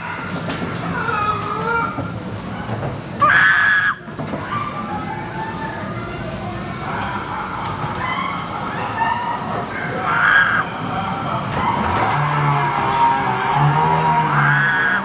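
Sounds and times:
ride rumbling: 0.0s - 15.0s
loud high scream: 3.2s - 4.0s, 10.0s - 10.7s, 11.8s - 15.0s.

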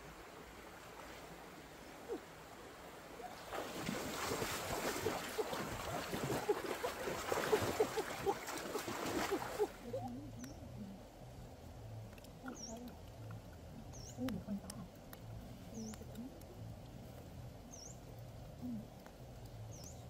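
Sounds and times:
water splashing and gurgling: 0.0s - 10.2s
faint steady hiss: 0.0s - 20.0s.

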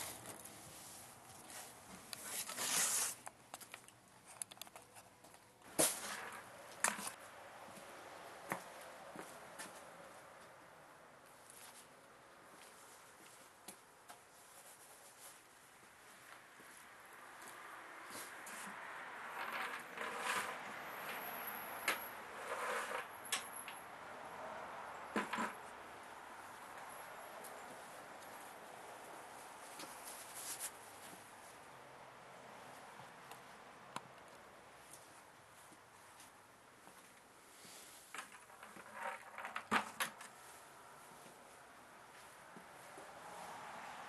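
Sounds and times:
plastic bucket scuffing: 5.7s - 7.2s.

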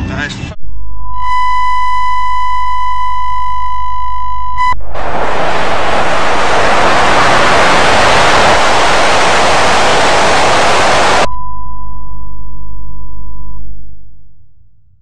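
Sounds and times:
low hum: 0.5s - 15.0s
tv static hiss: 4.6s - 11.3s.

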